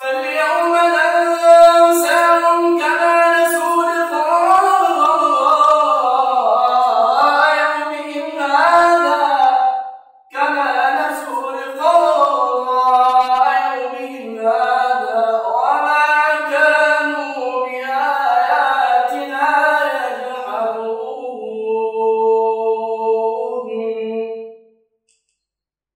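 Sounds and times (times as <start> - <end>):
man reciting melodically: 0.0 - 9.7, 10.3 - 24.0.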